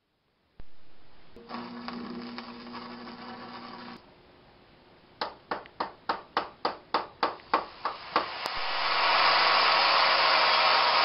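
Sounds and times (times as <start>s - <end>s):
loud steady hiss: 7.2s - 11.0s.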